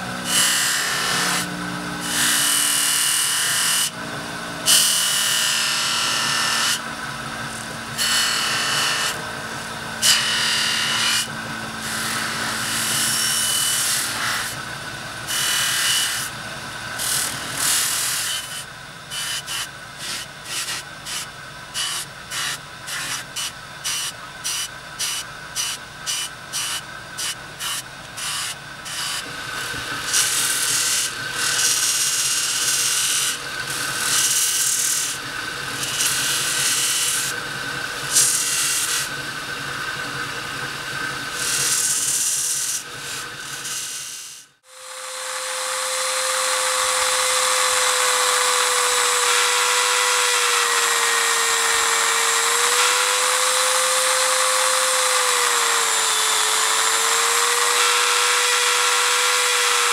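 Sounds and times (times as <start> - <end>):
metal rubbing on buffing wheel: 21.8 - 35.2, 35.8 - 37.3, 38.1 - 39.2, 41.4 - 44.4.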